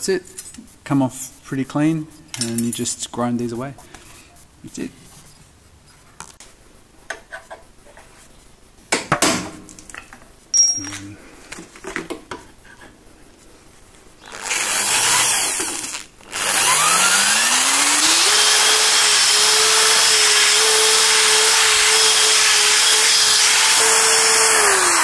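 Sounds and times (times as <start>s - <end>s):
cordless drill drilling sheet steel: 14.2s - 25.0s.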